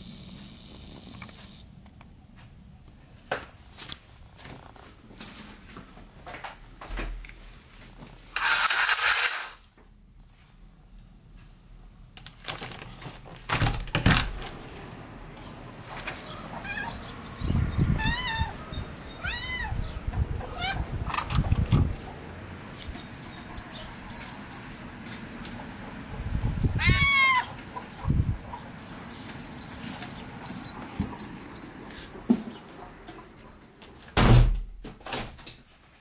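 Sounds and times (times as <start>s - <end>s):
loud scraping rustle: 8.3s - 9.6s
cat meowing: 16.2s - 20.9s, 26.8s - 27.6s.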